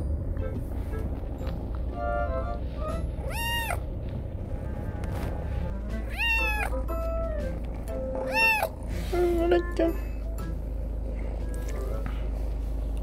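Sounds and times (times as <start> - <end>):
kitten meowing: 3.1 - 3.9, 6.0 - 6.8, 8.2 - 8.8.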